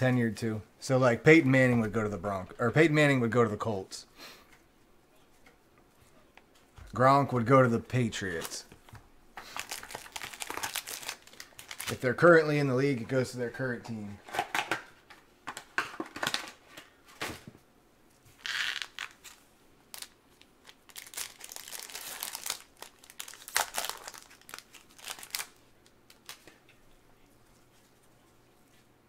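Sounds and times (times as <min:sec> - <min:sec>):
card wrappers crinkling: 0:07.9 - 0:12.3, 0:18.4 - 0:26.6
wrapper tearing rasp: 0:09.5 - 0:12.0, 0:18.4 - 0:26.5.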